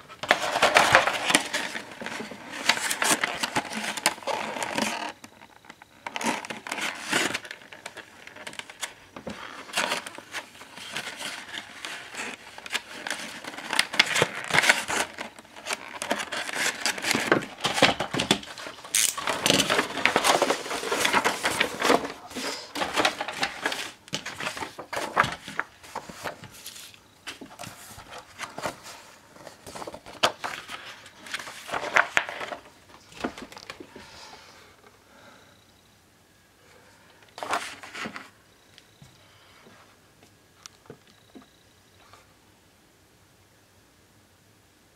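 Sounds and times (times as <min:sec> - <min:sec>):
plastic blister tray crinkling: 0:00.1 - 0:33.9
cardboard box being opened: 0:00.2 - 0:05.3, 0:06.1 - 0:32.6.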